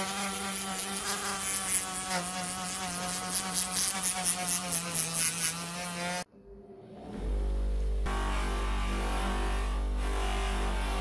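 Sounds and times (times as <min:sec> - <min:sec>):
rotary tool grinding metal: 0:00.0 - 0:06.3.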